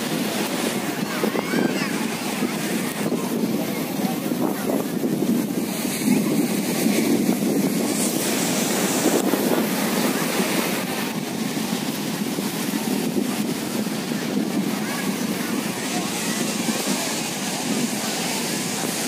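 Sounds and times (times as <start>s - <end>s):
faint murmur of crowd: 0.0s - 19.0s
surf washing: 0.0s - 19.0s
wind on microphone: 0.0s - 19.0s.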